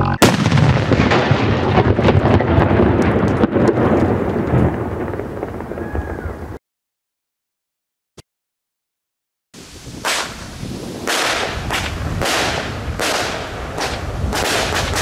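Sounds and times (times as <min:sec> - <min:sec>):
sudden loud bang: 0:00.0 - 0:02.2
dense crackling rumble: 0:00.0 - 0:06.6, 0:09.9 - 0:15.0.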